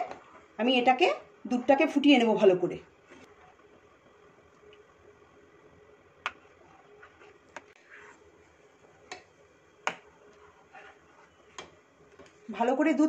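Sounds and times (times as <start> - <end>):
faint steady background noise: 0.0 - 13.0.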